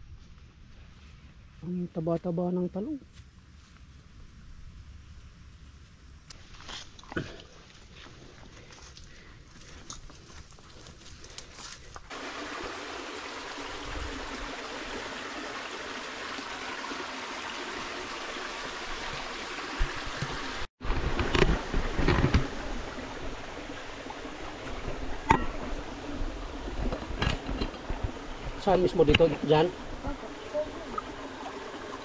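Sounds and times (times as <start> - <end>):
spring water trickling: 12.1 - 20.7, 22.6 - 32.0.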